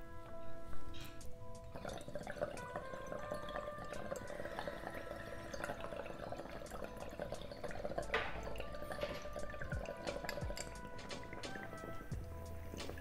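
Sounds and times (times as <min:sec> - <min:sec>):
water bubbling in a glass pipe: 0:01.2 - 0:13.0.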